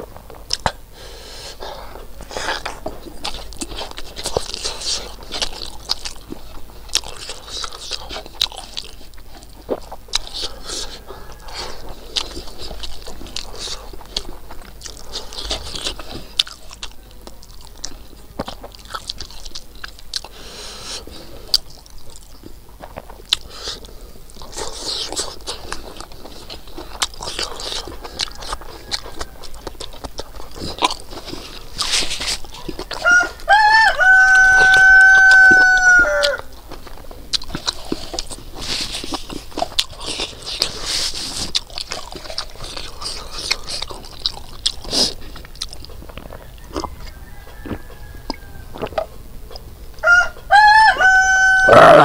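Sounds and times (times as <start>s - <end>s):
person chewing: 0.0s - 52.0s
rooster crowing: 10.8s - 11.9s, 27.6s - 29.9s, 32.9s - 36.5s, 46.2s - 49.1s, 50.0s - 52.0s.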